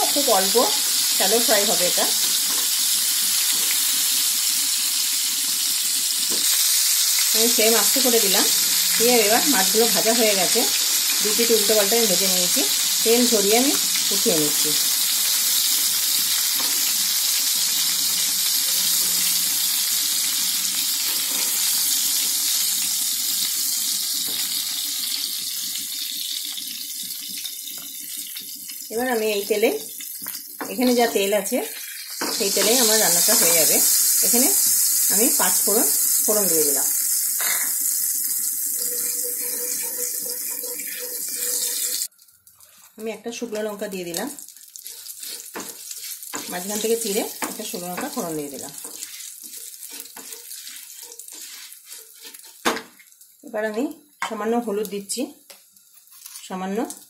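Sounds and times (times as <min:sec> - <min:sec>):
oil sizzling in a frying pan: 0:00.0 - 0:57.0
wooden spatula stirring: 0:38.8 - 0:42.9, 0:44.8 - 0:52.7.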